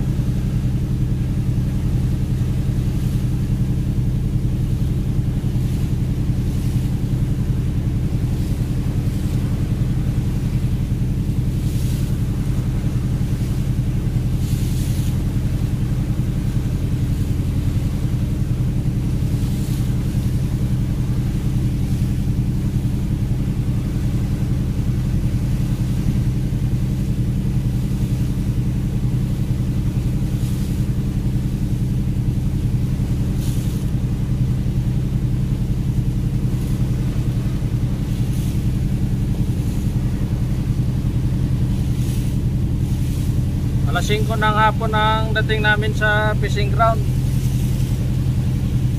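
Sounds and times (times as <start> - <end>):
boat engine droning: 0.0 - 48.9
faint swishes: 36.0 - 44.5.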